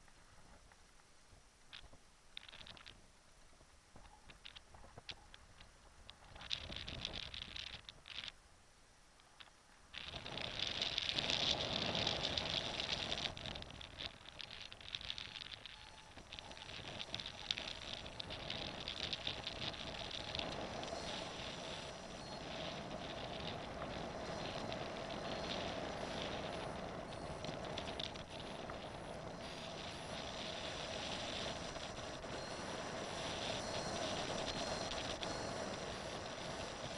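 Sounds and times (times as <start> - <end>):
wind buffeting microphone: 10.0 - 36.9.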